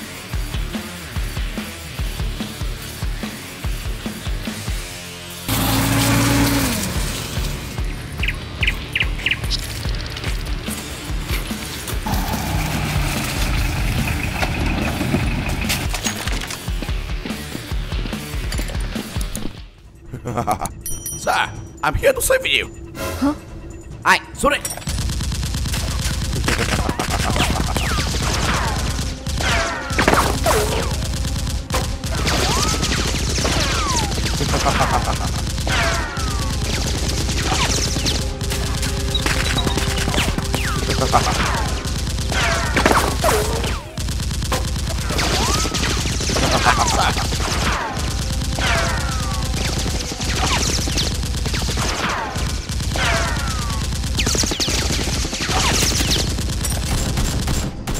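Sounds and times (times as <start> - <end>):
rapid automatic gunfire: 24.9 - 57.9.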